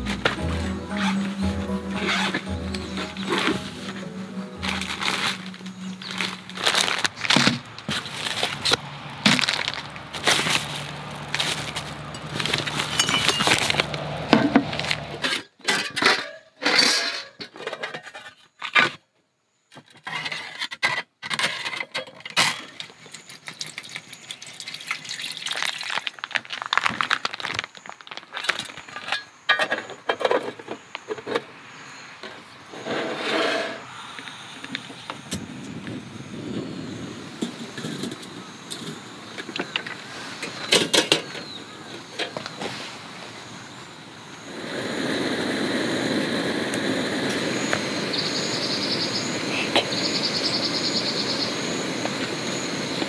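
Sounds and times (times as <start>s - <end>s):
dishes and utensils clinking: 12.0s - 13.8s.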